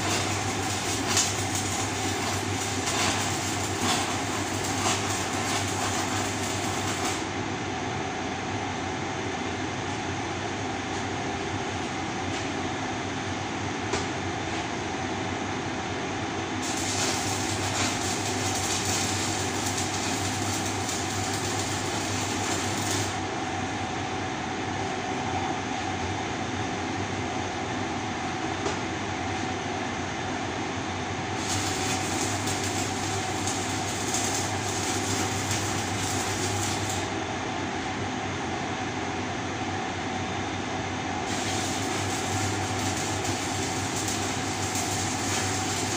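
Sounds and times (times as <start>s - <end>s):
welding arc crackling hiss: 0.0s - 7.3s, 16.6s - 23.7s, 31.4s - 37.2s, 41.2s - 45.9s
low electrical hum: 0.0s - 45.9s.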